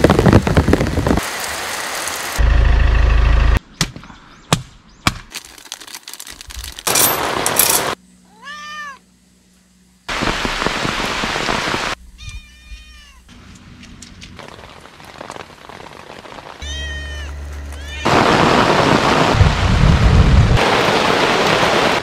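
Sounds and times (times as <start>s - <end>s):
heavy rain hiss: 0.0s - 3.4s, 10.0s - 12.0s, 14.4s - 22.0s
cat meowing: 8.3s - 9.0s, 12.2s - 13.3s, 16.6s - 18.1s.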